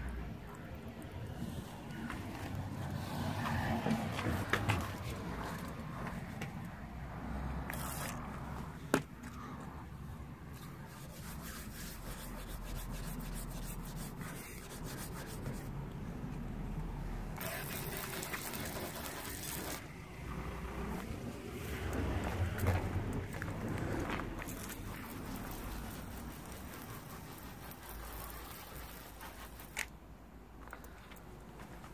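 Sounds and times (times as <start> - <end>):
hand rubbing rubbery coating: 7.6 - 8.6, 10.6 - 15.8, 17.4 - 20.0, 20.8 - 30.0.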